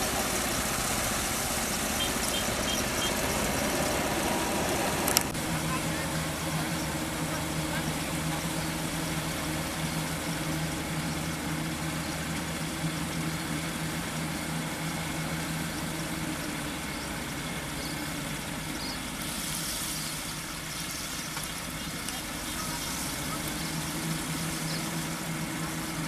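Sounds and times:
combine harvester engine hum: 0.0s - 26.0s
high hiss: 17.1s - 26.0s.

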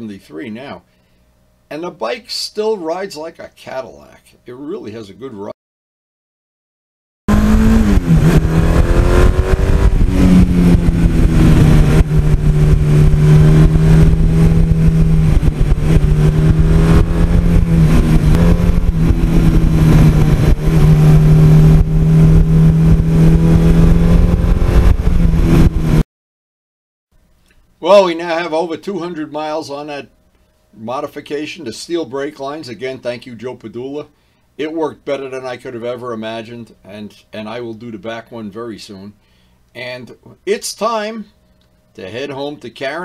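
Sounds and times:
motorcycle engine cruising: 7.3s - 26.0s.

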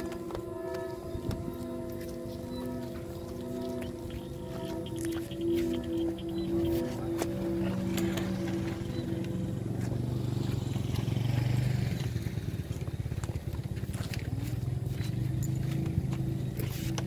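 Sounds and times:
kite flutes droning: 0.0s - 17.0s
low rumble: 1.0s - 12.7s.

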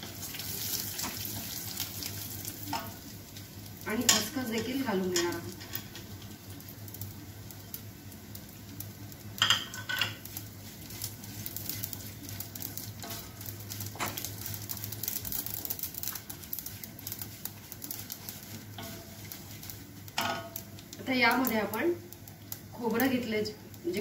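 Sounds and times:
nuts sizzling in fat: 0.0s - 24.0s
spatula scraping and tapping pan: 3.9s - 6.1s, 9.4s - 20.8s.

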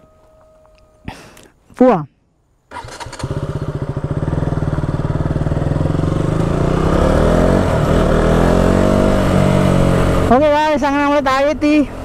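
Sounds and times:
motorcycle engine accelerating: 2.7s - 12.0s.

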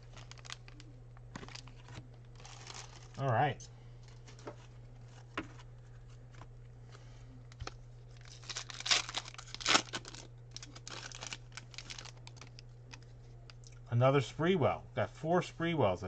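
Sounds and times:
foil wrapper tearing and crinkling: 0.0s - 3.3s, 7.6s - 13.1s.

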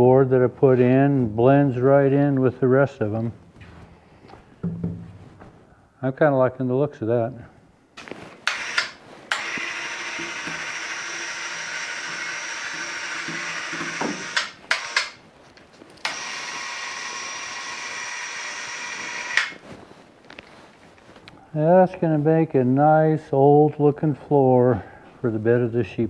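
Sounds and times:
electric hoist motor running: 8.4s - 15.2s, 16.0s - 19.6s
hoist clicks: 14.2s - 15.2s.

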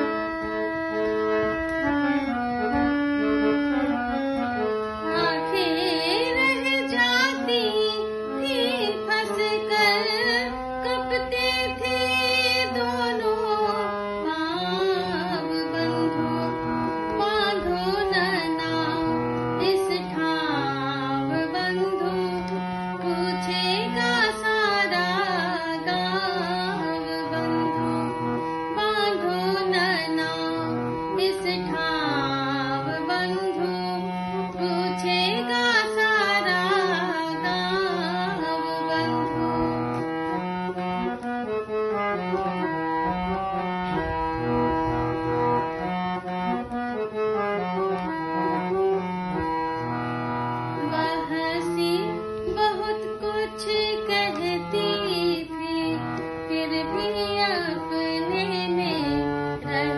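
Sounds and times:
harmonium chords: 0.0s - 59.9s
woman singing: 5.0s - 40.0s, 50.8s - 59.9s.

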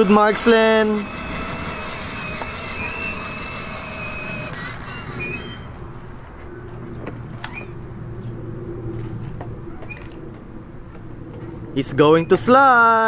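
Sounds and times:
toy electric motor whining: 0.0s - 5.9s.

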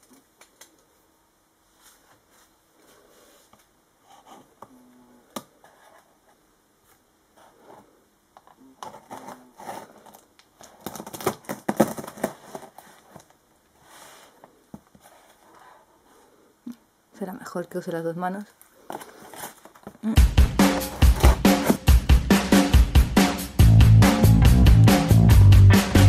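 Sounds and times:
tape crinkling: 8.8s - 13.4s, 18.6s - 20.0s, 20.6s - 21.9s.

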